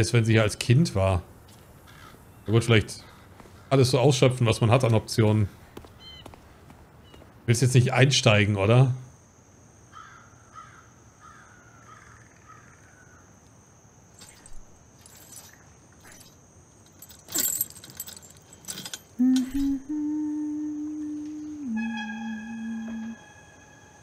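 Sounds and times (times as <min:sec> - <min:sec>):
metallic clatters and rattles: 0:14.2 - 0:19.8
low drone film score note: 0:19.2 - 0:24.0.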